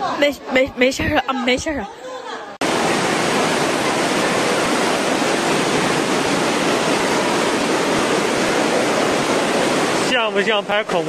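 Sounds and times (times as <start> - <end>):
floodwater rushing and churning: 2.6 - 11.0.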